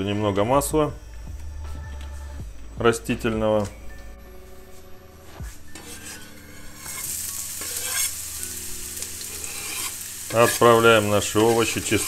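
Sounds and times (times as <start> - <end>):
onion sizzling in oil: 5.5 - 12.0
onion scraped off cutting board: 5.8 - 8.2, 9.3 - 10.8.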